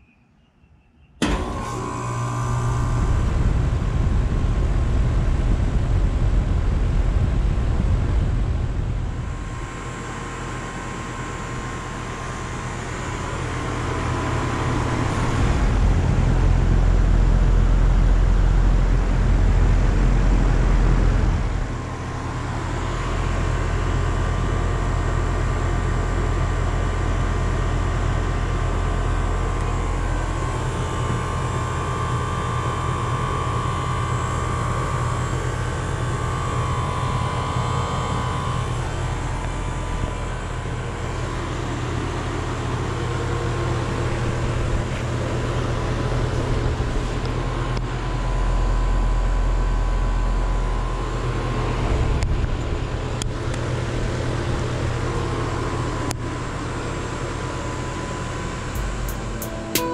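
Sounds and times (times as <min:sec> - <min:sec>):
compressor hum: 0:01.2 - 0:59.9
condenser fan rushing: 0:01.2 - 0:59.9
faint steady whine: 0:01.2 - 0:59.9
low rumble: 0:02.3 - 0:25.3, 0:58.6 - 0:59.9.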